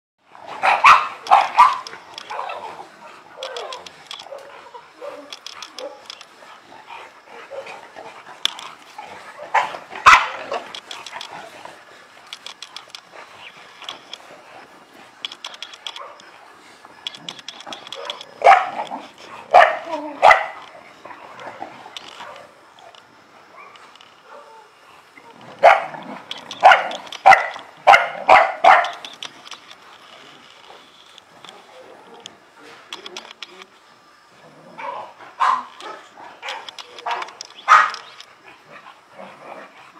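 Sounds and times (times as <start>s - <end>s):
dog barking: 0.6s - 2.6s, 9.5s - 10.4s, 17.9s - 18.8s, 19.5s - 20.6s, 25.6s - 26.0s, 26.6s - 29.0s, 34.8s - 38.0s.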